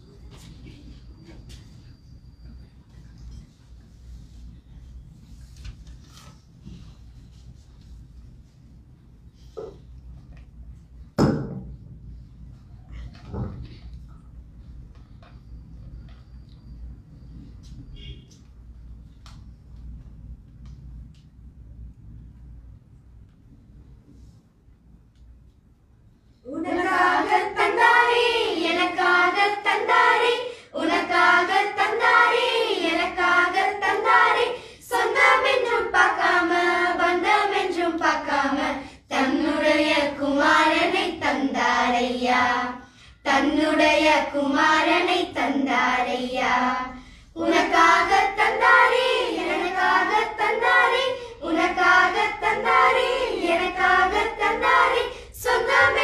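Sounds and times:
girls singing unaccompanied: 0:26.5 - 0:56.0.

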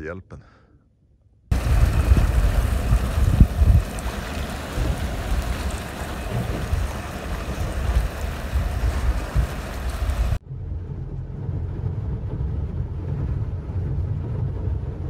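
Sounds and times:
wind buffeting microphone: 0:01.5 - 0:10.4.

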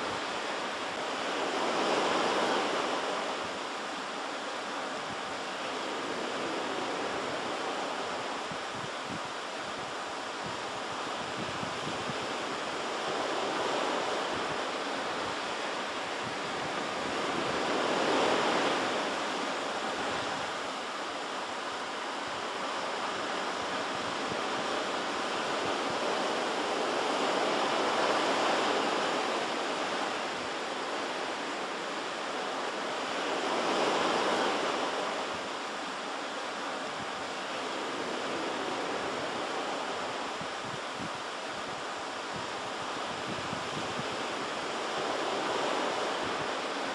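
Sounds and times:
surf washing ashore: 0:00.0 - 0:46.9
waves breaking: 0:00.0 - 0:46.9.

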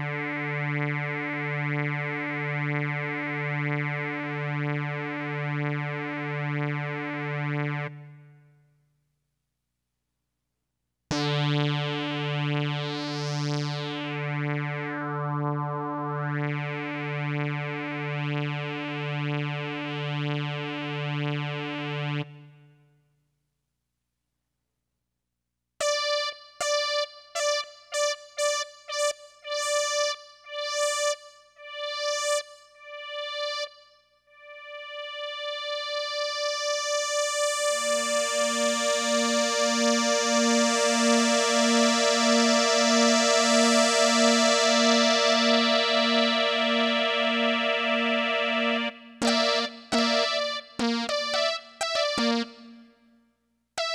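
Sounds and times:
slow attack synth note: 0:46.5 - 0:52.8
short higher synth notes: 0:47.3 - 0:52.8.

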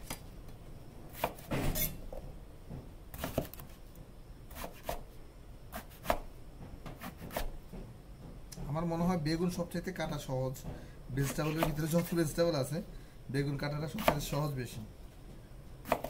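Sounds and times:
knife chopping on wooden board: 0:01.1 - 0:01.9, 0:03.1 - 0:03.8, 0:04.5 - 0:05.0, 0:05.7 - 0:07.5, 0:11.2 - 0:12.1, 0:14.0 - 0:14.3.

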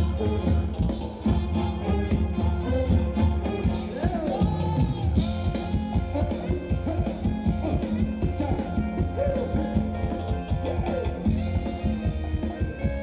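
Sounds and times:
band playing upbeat dance music: 0:00.0 - 0:13.0
drum kit beat: 0:00.0 - 0:13.0
guitar: 0:00.0 - 0:13.0
person singing: 0:02.6 - 0:09.9.

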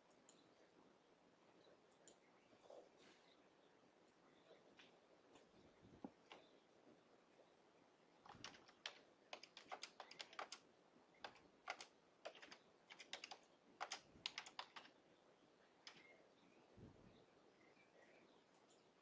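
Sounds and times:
typing on computer keyboard: 0:08.3 - 0:10.6, 0:11.2 - 0:14.9, 0:15.8 - 0:16.1.

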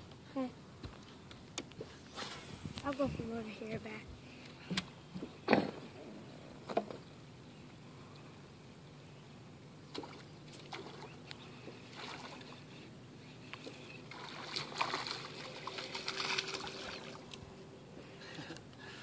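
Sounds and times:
fish splashing in water: 0:09.9 - 0:11.2, 0:14.0 - 0:17.3.

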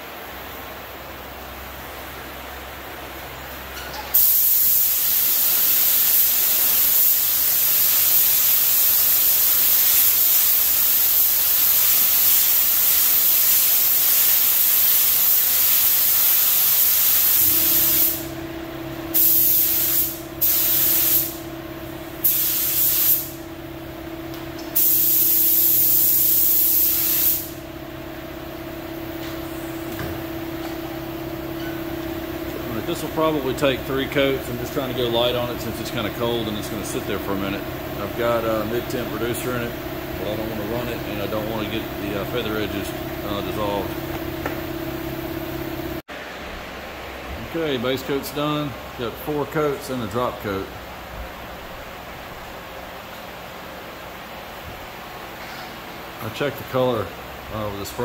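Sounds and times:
paint spray gun hissing: 0:04.1 - 0:18.4, 0:19.1 - 0:21.5, 0:22.1 - 0:23.5, 0:24.6 - 0:27.6, 0:32.4 - 0:46.0
steady low hum: 0:07.4 - 0:58.0.

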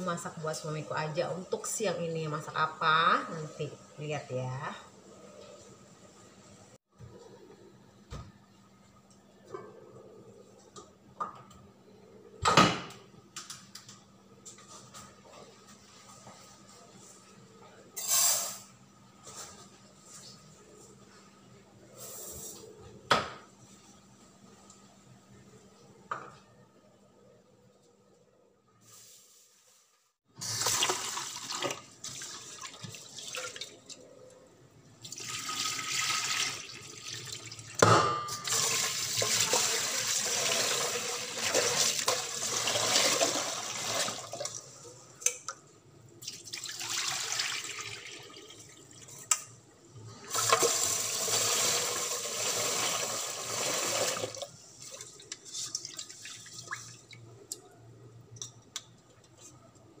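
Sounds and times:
tap water running into pot: 0:30.4 - 0:33.7, 0:50.3 - 0:54.5.

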